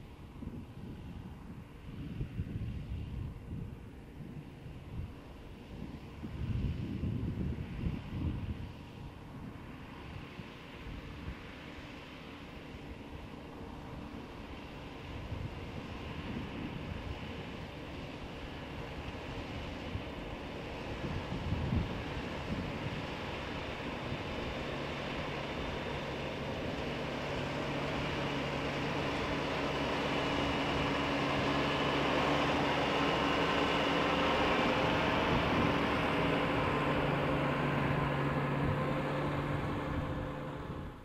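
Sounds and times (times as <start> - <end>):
wind gusts on microphone: 0.2 - 11.7, 12.8 - 41.0
tractor engine running: 4.4 - 41.0.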